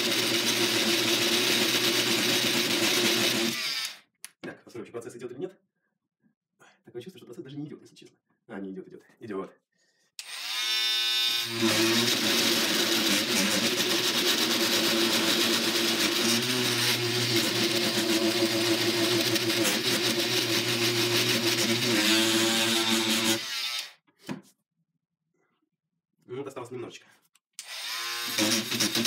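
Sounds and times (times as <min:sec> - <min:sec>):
angle grinder grinding metal: 0:10.2 - 0:24.0, 0:27.6 - 0:29.0.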